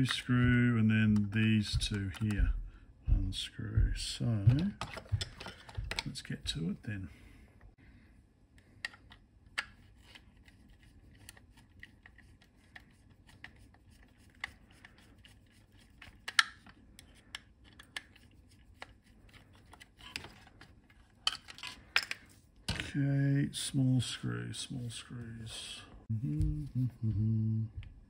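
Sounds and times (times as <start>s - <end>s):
screwdriver clicks and scrapes: 15.7s - 22.2s.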